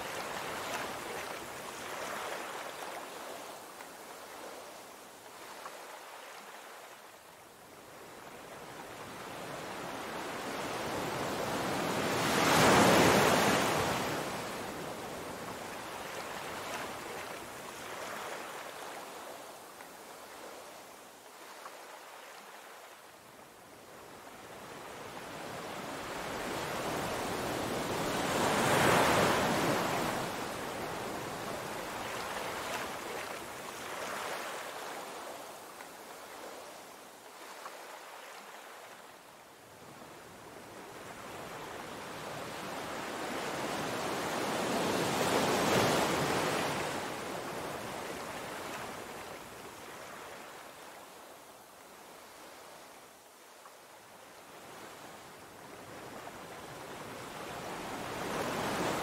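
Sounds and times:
surf washing over rocks: 26.0 - 35.7.

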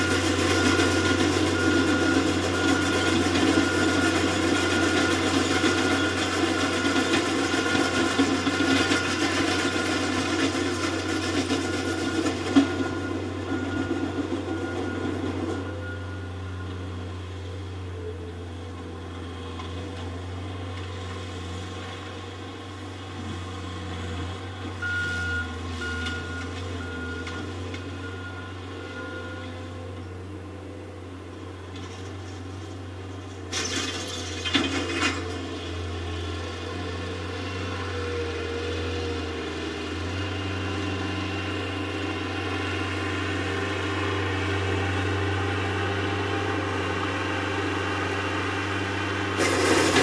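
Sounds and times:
heavy diesel engines running: 0.0 - 50.0
backup alarm beeping: 24.8 - 29.4.

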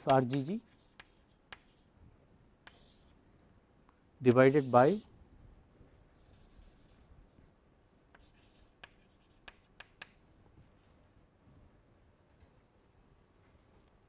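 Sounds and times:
chalk scratching on chalkboard: 0.0 - 1.9, 2.6 - 3.2, 4.3 - 5.1, 6.2 - 7.1, 8.2 - 10.0
chalk tapping on board: 0.0 - 1.9, 2.6 - 3.1, 8.1 - 10.2.

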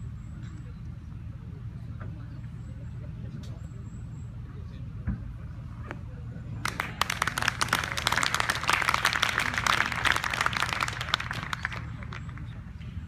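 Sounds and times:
crowd applauding: 6.6 - 12.6.

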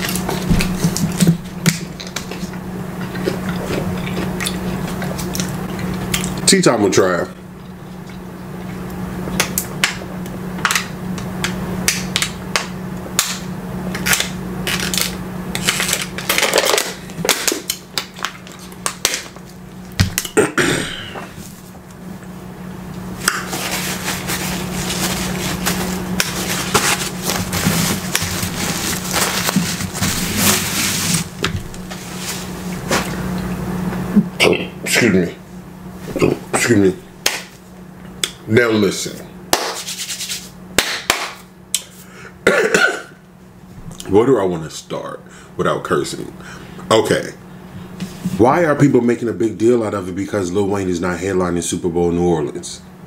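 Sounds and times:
steady low hum: 0.0 - 53.0
packaging rustling: 23.4 - 33.2.

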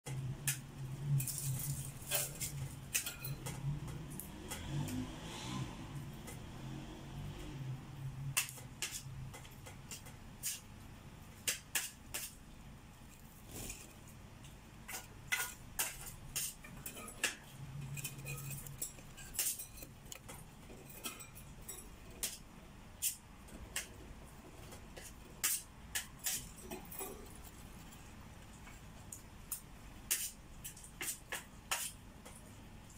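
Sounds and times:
budgerigar claws clicking on wire cage: 14.4 - 32.9.

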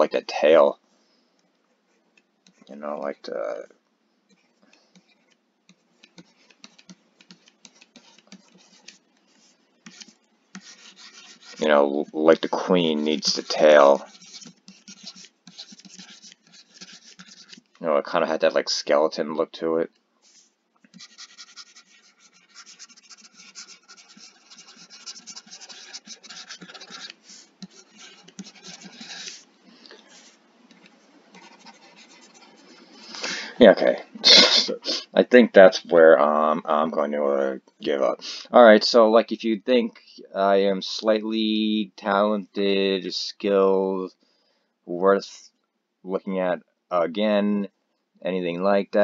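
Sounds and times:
stylus tapping on tablet: 5.0 - 11.4, 20.9 - 29.1.

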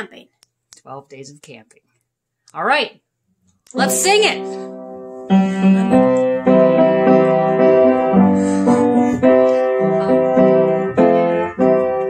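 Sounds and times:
piano chords: 3.8 - 12.0.

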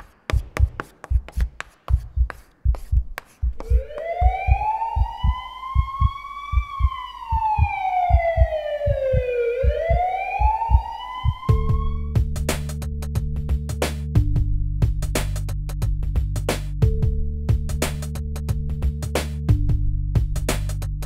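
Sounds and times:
heartbeat thumping: 0.3 - 12.5
emergency siren wailing: 3.6 - 12.2.

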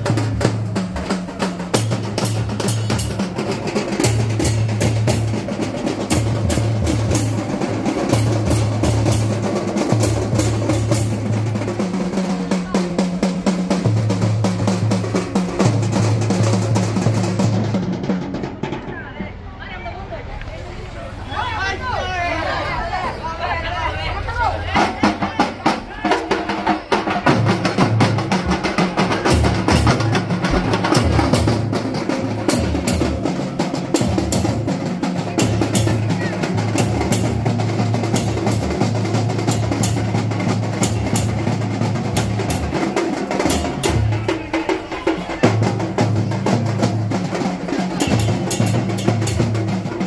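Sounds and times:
drums and cymbals beaten rapidly: 0.0 - 19.5, 24.6 - 50.0.

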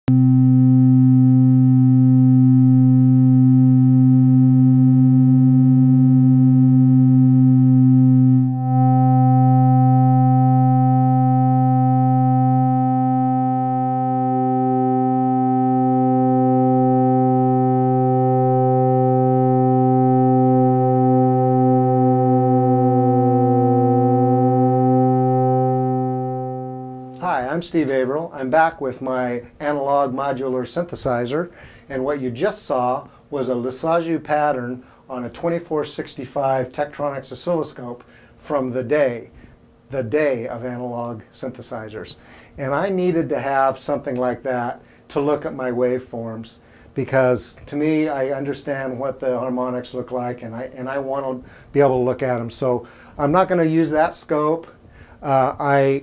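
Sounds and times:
synthesizer drone: 0.1 - 27.2.

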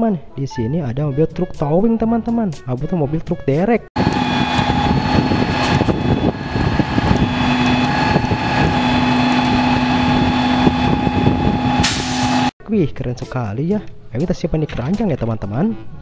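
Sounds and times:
diesel engine running: 4.0 - 12.5.

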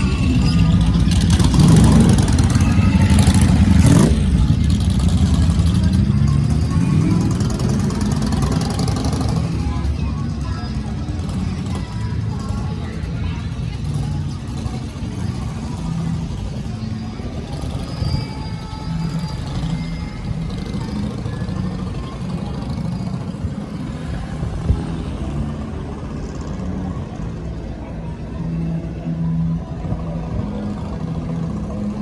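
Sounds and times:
low traffic rumble: 0.0 - 32.0.

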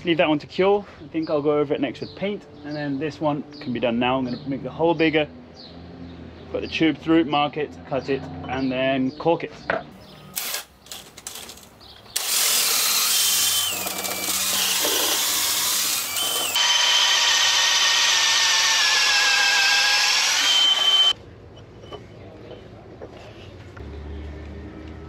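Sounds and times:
power drill boring into wood: 10.3 - 11.5, 12.2 - 21.2.

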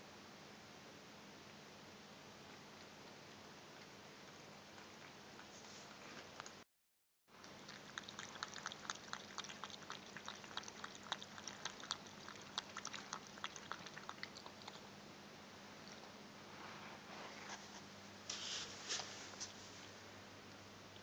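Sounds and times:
cat lapping water: 2.6 - 6.6, 7.3 - 14.9.

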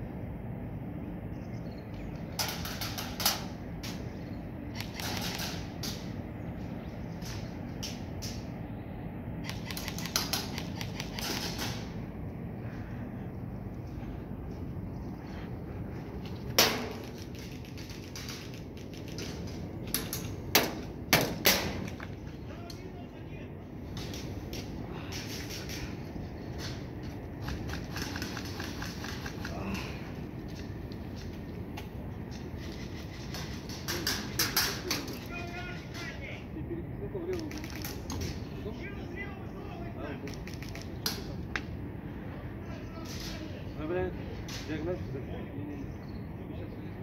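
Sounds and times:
airsoft rifle shots: 4.8 - 6.1, 9.4 - 12.0, 16.6 - 17.1, 20.5 - 22.0.

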